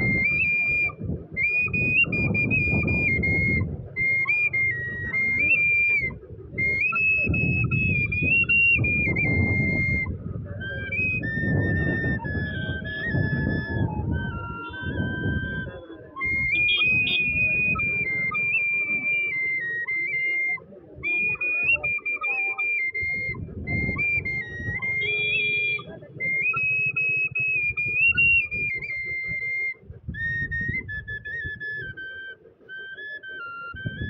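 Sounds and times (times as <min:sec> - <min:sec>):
bamboo flute melody: 0:00.0 - 0:34.0.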